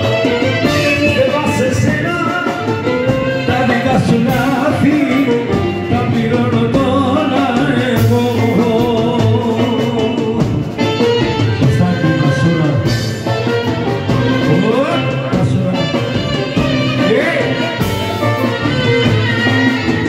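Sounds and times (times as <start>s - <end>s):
clarinet: 0.0s - 6.5s, 10.8s - 20.0s
drum kit: 0.0s - 20.0s
folk music through speakers: 0.0s - 20.0s
man singing: 0.0s - 20.0s.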